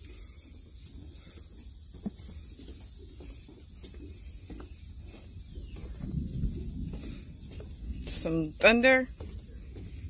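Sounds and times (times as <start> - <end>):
constant high hiss: 0.0 - 10.0
low rumble: 5.4 - 10.0.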